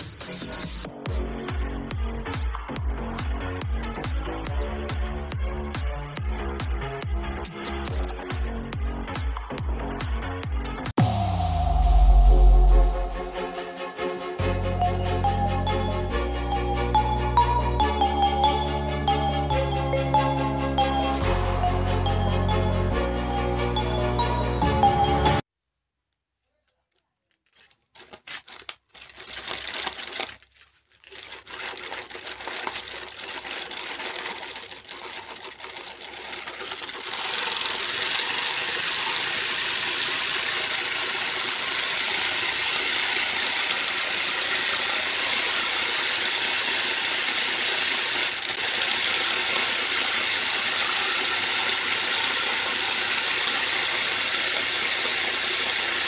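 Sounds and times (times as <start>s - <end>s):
small motor whirring clatter: 27.5s - 56.0s.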